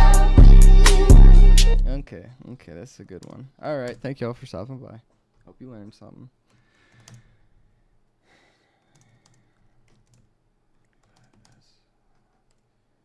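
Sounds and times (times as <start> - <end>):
faint keyboard typing: 5.1 - 7.7, 8.8 - 13.0.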